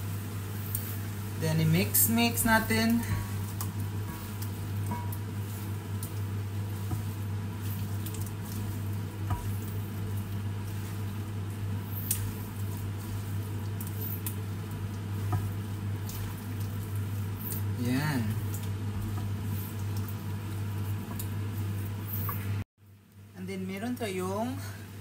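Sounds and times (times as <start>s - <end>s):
steady low hum: 0.0s - 23.4s
meat squishing and scraping in pan: 1.8s - 22.7s
utensils clicking on pan: 2.8s - 11.2s, 11.8s - 17.8s.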